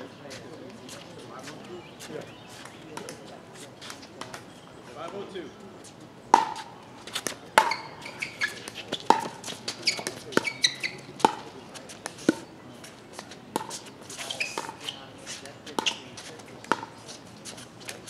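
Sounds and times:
paddles hitting plastic ball: 6.4s - 7.8s.

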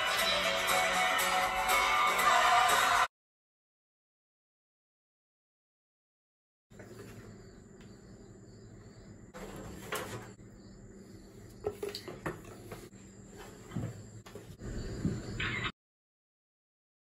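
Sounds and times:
steady low hum: 6.7s - 15.4s
light knocks and scrapes: 9.4s - 10.4s, 11.4s - 15.3s.

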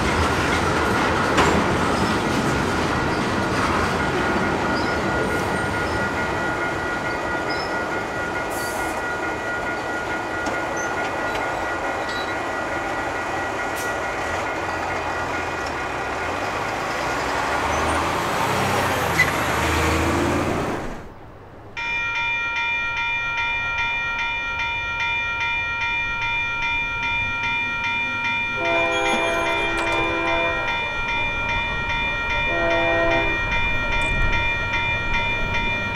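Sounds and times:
freight train wheels clattering: 0.0s - 19.8s
level crossing bell ringing: 21.8s - 35.9s.

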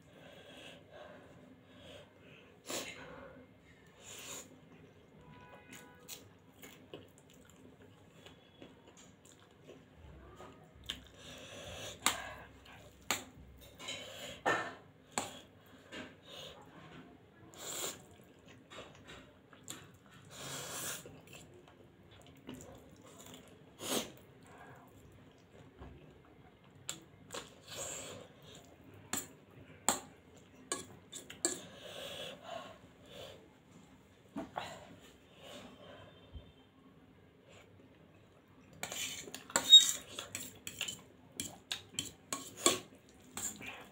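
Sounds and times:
chewing and slurping noodles: 6.5s - 10.0s, 17.5s - 25.7s.

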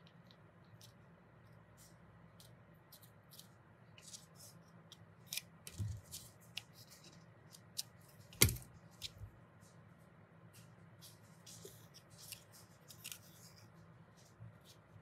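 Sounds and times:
paper rustling and crinkling: 5.2s - 9.8s, 10.5s - 15.0s
scissors knocking on work surface: 8.4s - 8.6s.

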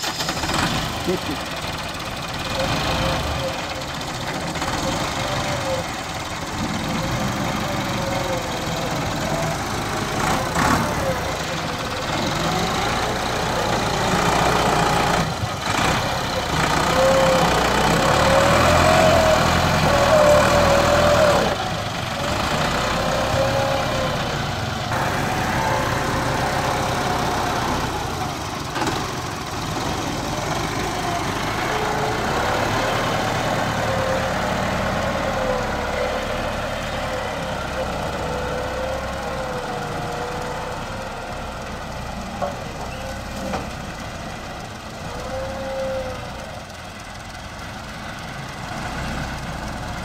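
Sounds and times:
tractor diesel engine under load: 0.0s - 50.0s
engine whine: 2.4s - 41.5s.

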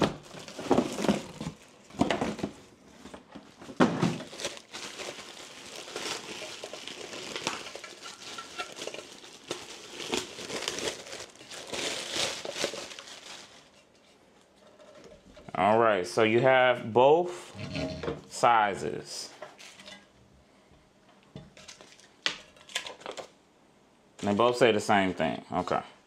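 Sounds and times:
plastic wrap crinkling: 0.0s - 14.1s, 19.5s - 20.0s, 21.6s - 23.3s.

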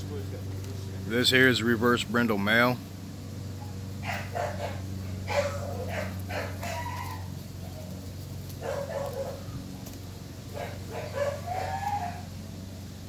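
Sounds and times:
steady low hum: 0.0s - 13.0s
short animal calls: 5.3s - 7.4s, 11.0s - 12.3s.

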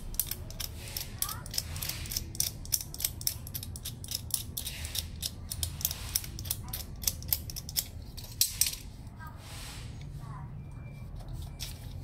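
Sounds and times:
screwdriver clicking on metal: 0.0s - 8.8s.

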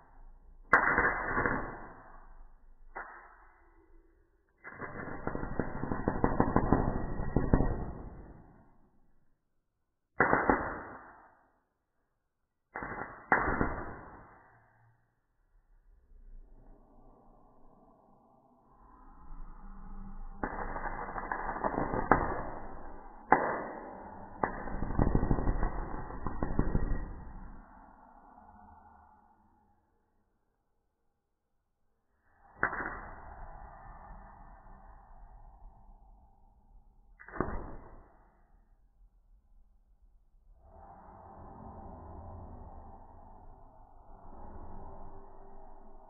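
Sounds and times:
electric arc crackling: 0.7s - 2.2s, 4.6s - 8.8s, 10.2s - 11.1s, 12.8s - 14.2s, 20.2s - 27.6s.

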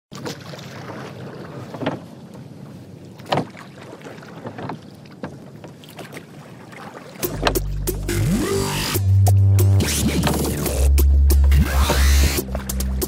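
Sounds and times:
water splashing around boat: 0.1s - 13.0s.

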